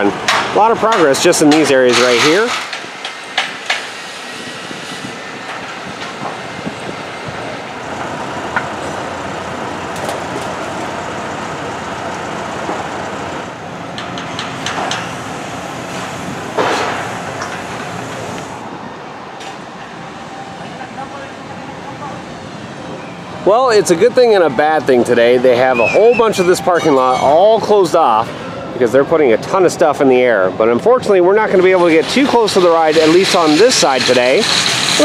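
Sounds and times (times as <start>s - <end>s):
construction machinery noise: 0.0s - 35.0s
sharp knocks and clanks: 0.2s - 3.9s, 14.0s - 15.2s, 16.6s - 18.0s.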